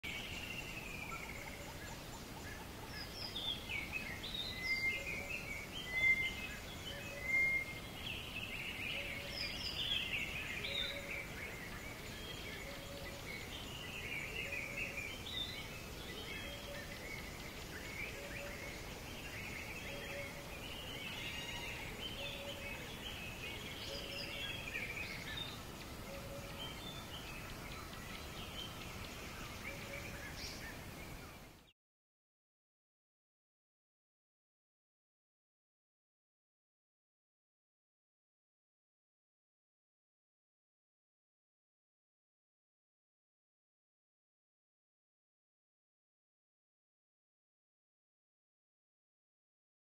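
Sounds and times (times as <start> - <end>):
birds chirping and whistling: 0.1 - 31.5
steady background hiss: 0.1 - 31.7.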